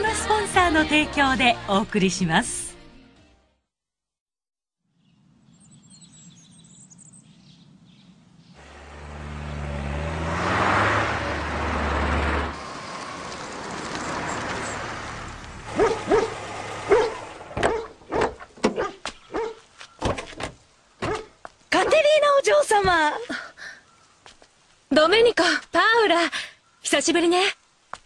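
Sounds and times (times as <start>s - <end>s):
car engine driving up: 8.6s - 18.0s
dog barking: 15.7s - 19.6s, 21.0s - 22.0s.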